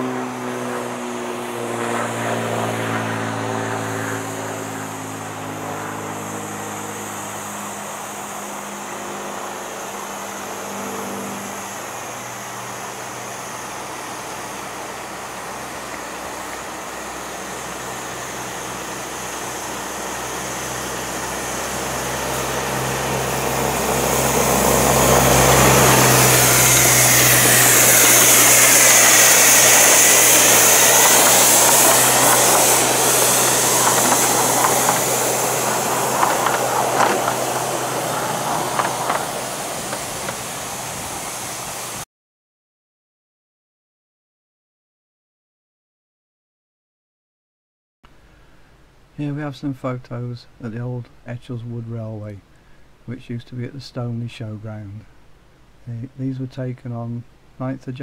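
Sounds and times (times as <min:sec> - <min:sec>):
miniature steam locomotive passing: 0:00.0 - 0:42.0.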